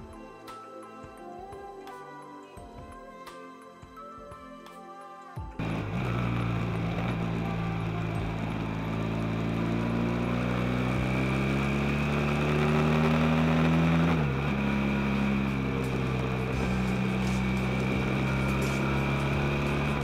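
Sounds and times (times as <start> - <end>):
motorcycle engine pulling: 5.6 - 20.0
wind and road noise: 5.6 - 20.0.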